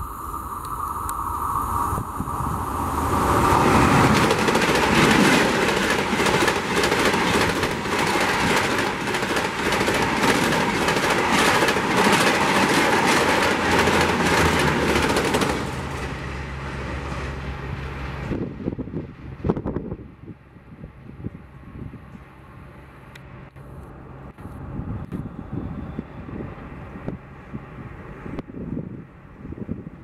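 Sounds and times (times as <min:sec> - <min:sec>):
train passing at high speed: 0:00.0 - 0:30.0
wheels clattering over rail joints: 0:03.4 - 0:16.4.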